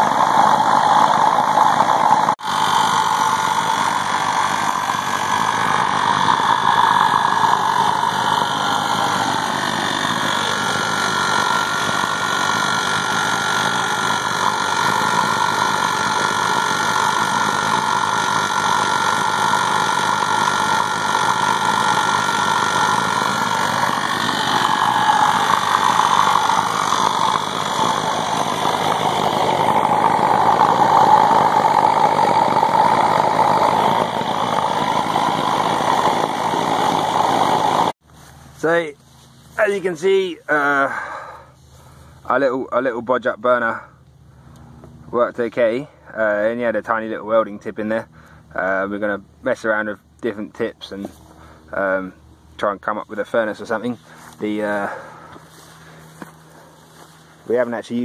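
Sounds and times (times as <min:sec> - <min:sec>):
oil burner firing: 0:00.0 - 0:38.0
air compressor running: 0:00.0 - 0:49.4, 0:50.0 - 0:58.0.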